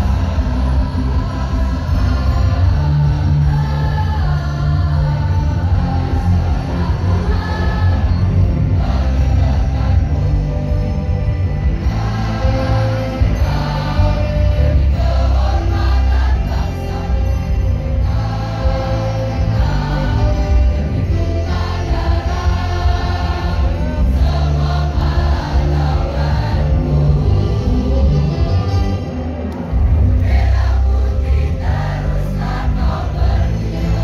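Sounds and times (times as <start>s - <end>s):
choir singing held notes: 0.0s - 10.8s, 11.6s - 34.0s
musical accompaniment with strong bass: 0.0s - 34.0s.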